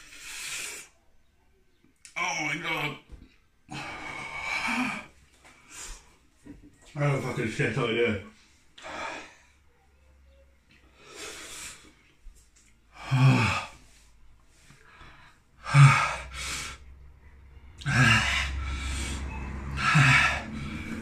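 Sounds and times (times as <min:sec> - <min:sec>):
man gasping and breathing hard: 0:12.9 - 0:14.0, 0:17.8 - 0:21.0.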